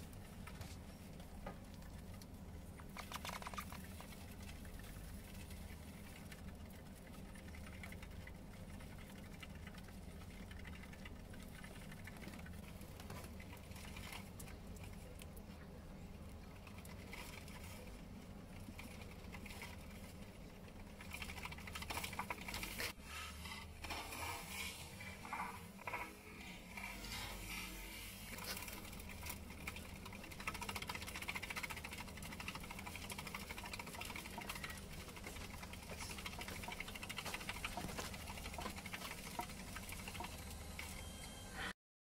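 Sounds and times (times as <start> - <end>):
hamster paws scrabbling on plastic wheel: 0.0 - 41.1
steady low hum: 0.0 - 41.8
exercise wheel clicking and rattling: 16.5 - 23.0, 25.0 - 41.0.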